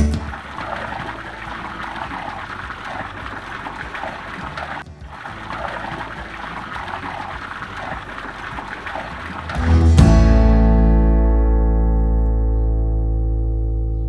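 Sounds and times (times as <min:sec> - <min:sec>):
water splashing into stone pool: 0:00.0 - 0:10.4.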